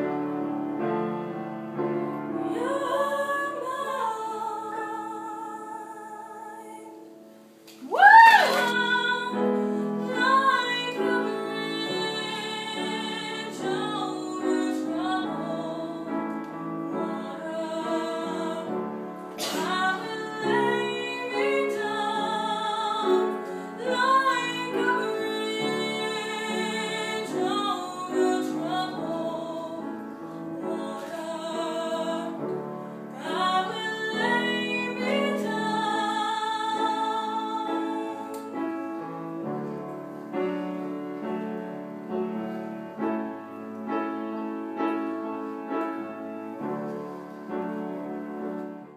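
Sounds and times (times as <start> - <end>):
woman singing operatically: 7.8 - 16.2, 19.5 - 29.9, 33.2 - 38.4.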